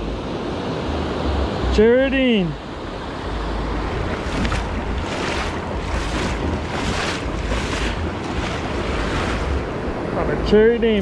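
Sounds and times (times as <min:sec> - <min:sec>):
ocean surf washing in: 0:00.0 - 0:11.0
wind buffeting microphone: 0:03.3 - 0:11.0.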